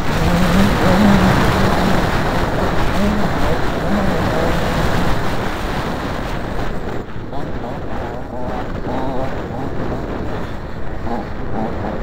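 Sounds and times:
dirt bike engine: 0.0s - 12.0s
wind rush on microphone: 0.0s - 12.0s.

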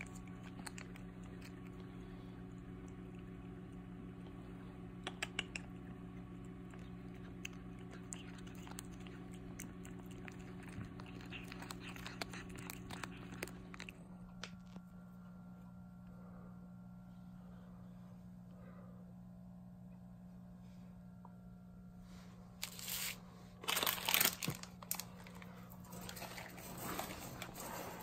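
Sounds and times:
kitten licking and lapping: 0.0s - 14.8s
low hum: 0.0s - 28.0s.

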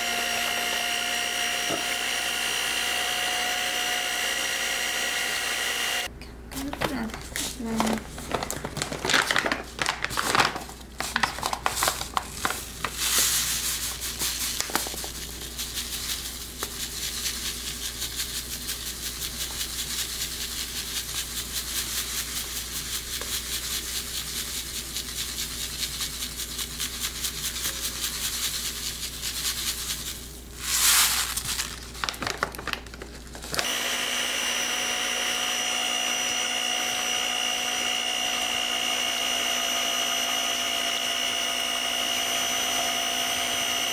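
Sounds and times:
electric hand mixer whining: 0.0s - 6.1s, 33.5s - 43.9s
plastic bag crinkling: 6.6s - 21.6s, 26.4s - 33.6s
sugar pouring into bowl: 12.5s - 32.2s.

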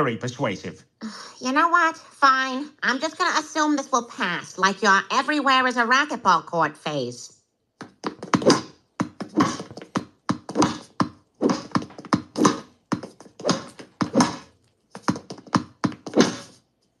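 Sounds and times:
ball bouncing off walls: 7.8s - 16.6s
ball hit by racquets: 7.8s - 16.6s.

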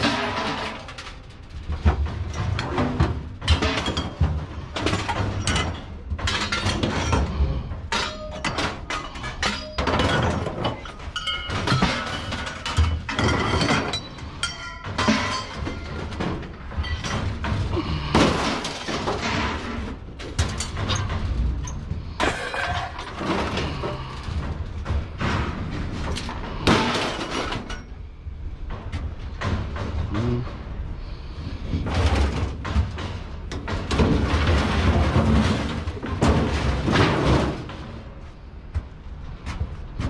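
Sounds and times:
scrap metal clattering: 0.0s - 38.6s.

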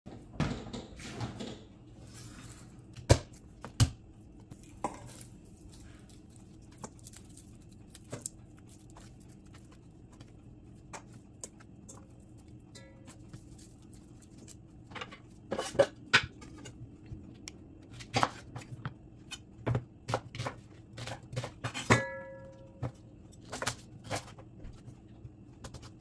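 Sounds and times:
papery rustling of garlic peel: 4.5s - 10.4s.

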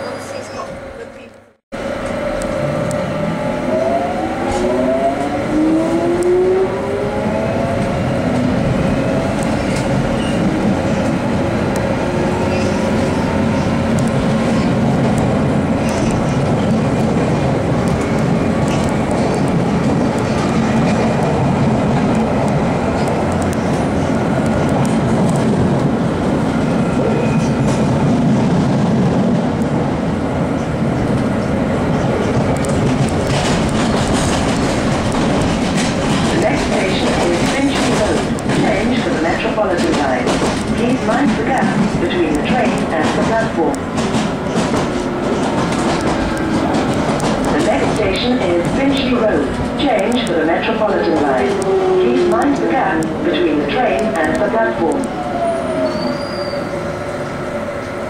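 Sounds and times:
wheels rumbling on track: 0.3s - 58.0s.

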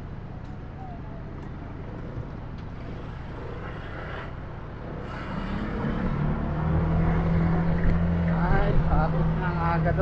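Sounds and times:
street traffic: 0.0s - 10.0s
vehicle engine running close by: 1.4s - 10.0s.

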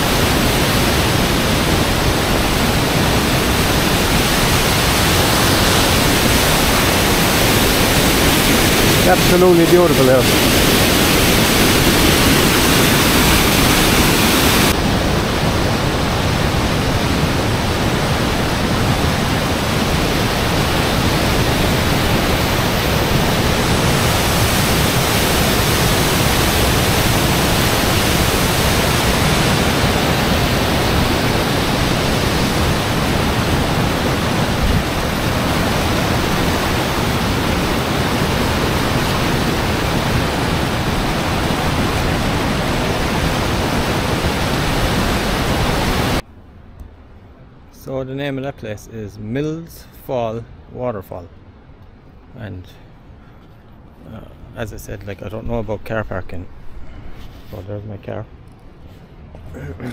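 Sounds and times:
waterfall rushing: 0.0s - 46.2s.

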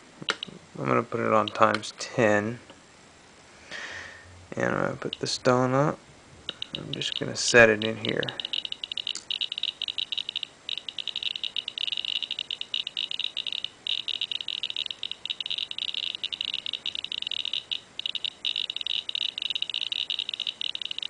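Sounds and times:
geiger counter clicking rapidly: 6.5s - 21.0s.

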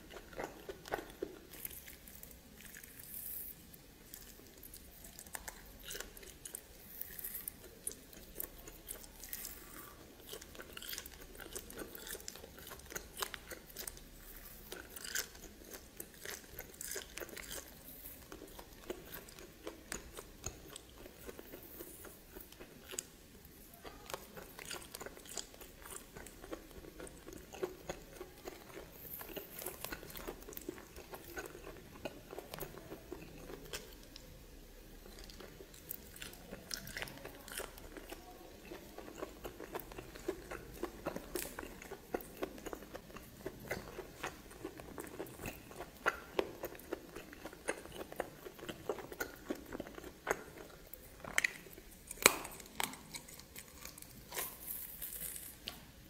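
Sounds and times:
person chewing crunchy meat: 0.0s - 34.3s, 34.9s - 55.8s.

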